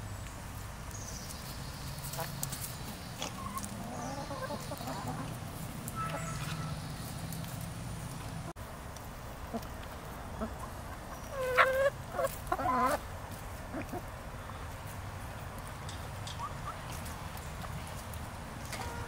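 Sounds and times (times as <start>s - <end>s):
hens clucking: 2.0s - 8.5s, 9.4s - 14.7s, 18.6s - 19.0s.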